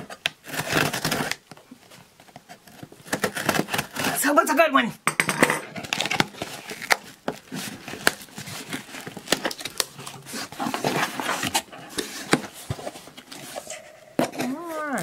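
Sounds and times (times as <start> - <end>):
rustling and scraping: 5.4 - 15.0.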